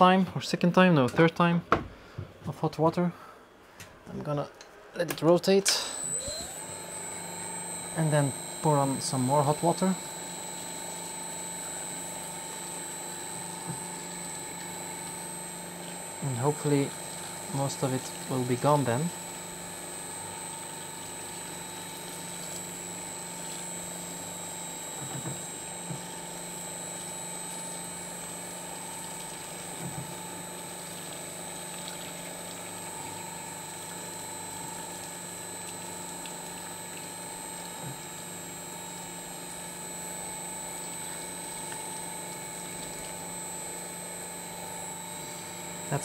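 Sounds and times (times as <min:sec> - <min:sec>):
paper shredder motor running: 0:05.8 - 0:46.0
water pouring: 0:20.5 - 0:23.8, 0:28.2 - 0:39.7, 0:40.8 - 0:43.9.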